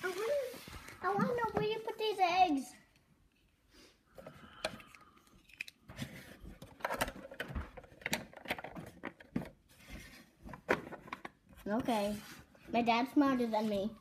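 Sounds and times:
plastic toy clicks and knocks: 6.6s - 9.5s.

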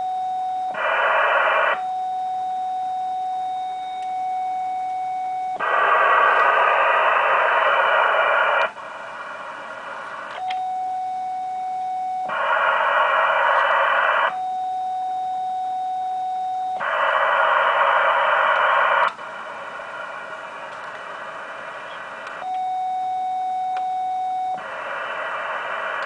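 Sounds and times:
radio static hiss: 0.7s - 1.9s, 5.6s - 10.5s, 12.2s - 14.4s, 16.8s - 22.5s, 24.5s - 26.0s.

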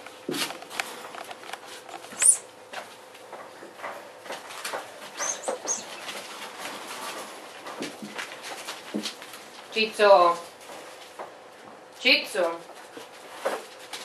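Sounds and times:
puppy squeaking: 2.1s - 2.4s, 5.2s - 6.2s
puppies rustling in bed: 3.9s - 14.0s.

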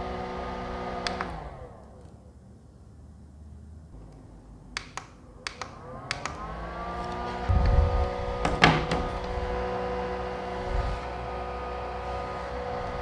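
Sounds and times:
small fan motor humming: 5.7s - 13.0s
plastic unit thump and clatter: 8.4s - 9.2s.

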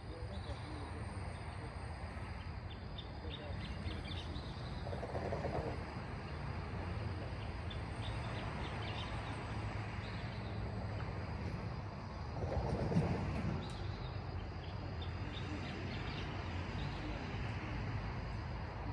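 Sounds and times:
night insects chirping: 0.0s - 18.9s
steady low rumble: 0.0s - 18.9s
birds chirping: 2.2s - 6.5s, 7.1s - 11.8s, 12.4s - 18.3s.

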